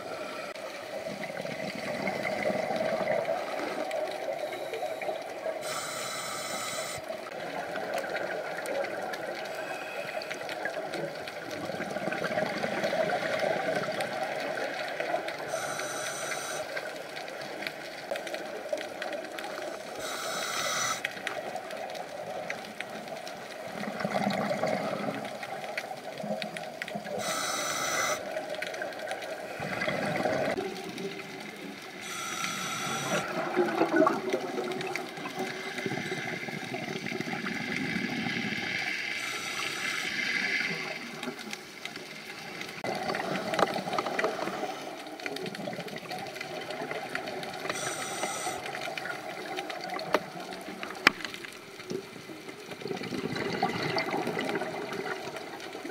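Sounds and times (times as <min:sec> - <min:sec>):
regulator intake hiss: 0:05.6 - 0:07.0, 0:15.5 - 0:16.7, 0:19.9 - 0:21.0, 0:27.2 - 0:28.2, 0:32.0 - 0:33.3, 0:39.2 - 0:40.5, 0:47.7 - 0:48.7
exhaled bubbles rushing: 0:29.5 - 0:31.0, 0:33.0 - 0:38.7, 0:52.8 - 0:55.9.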